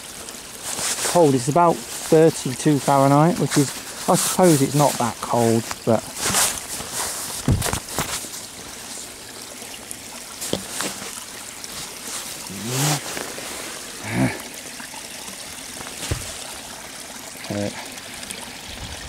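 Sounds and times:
bottle filling in water: 0.0 - 19.0
water trickling: 0.0 - 19.0
wordless vocal sounds: 12.4 - 13.3, 14.0 - 14.5.

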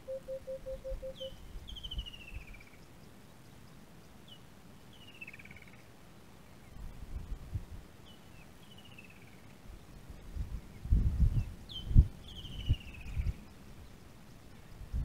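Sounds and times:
bird singing falling trill: 0.0 - 2.4.

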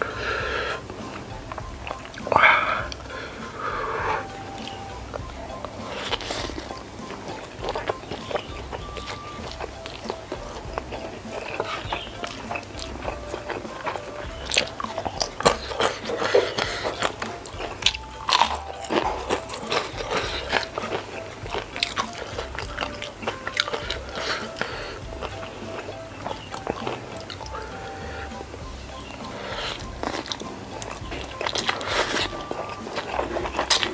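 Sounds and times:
wet chewing: 0.0 - 33.9
crunching bites: 5.8 - 28.4.

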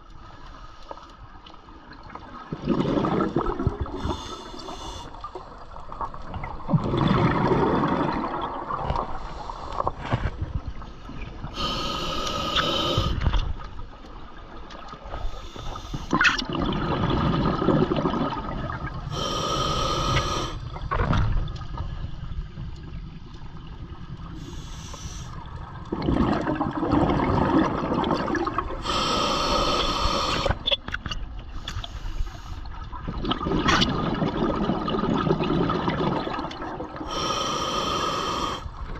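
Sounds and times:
regulator hissing inhale: 0.2 - 1.2, 4.0 - 5.2, 9.2 - 10.0, 11.5 - 13.4, 15.1 - 16.1, 19.1 - 20.6, 24.4 - 25.5, 28.8 - 30.6, 31.5 - 32.7, 37.0 - 38.8
exhaled bubbles gurgling: 1.8 - 13.3, 15.9 - 30.8, 32.8 - 38.9.

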